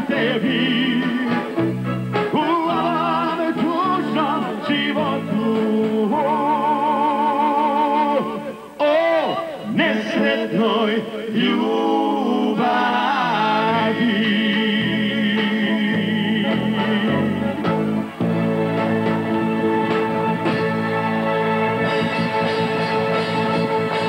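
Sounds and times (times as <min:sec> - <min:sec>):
live band playing: 0:00.0 - 0:09.6, 0:13.4 - 0:24.0
man singing with vibrato: 0:00.0 - 0:17.8.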